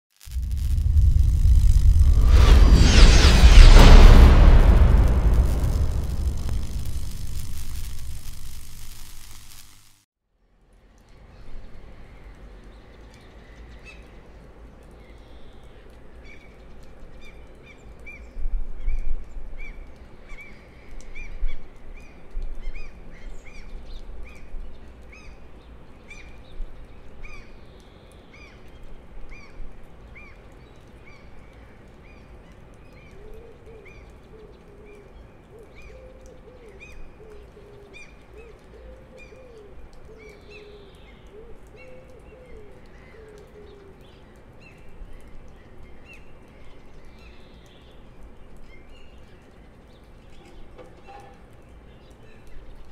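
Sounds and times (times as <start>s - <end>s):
low rumble: 0.2s - 9.8s.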